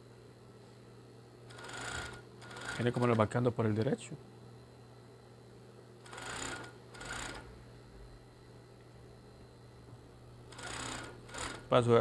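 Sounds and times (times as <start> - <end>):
steady low hum: 0.0 - 12.0
sewing machine stitching: 1.5 - 3.0, 6.1 - 7.5, 10.5 - 11.7.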